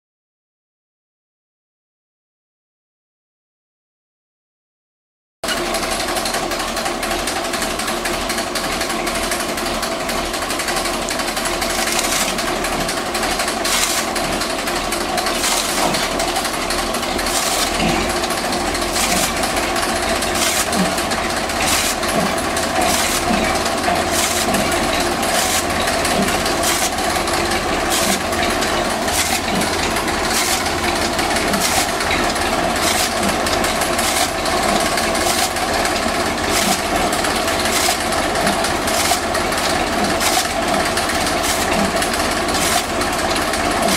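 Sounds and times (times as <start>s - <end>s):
tractor engine running: 5.4s - 43.9s
cutter blades chopping: 10.7s - 43.9s.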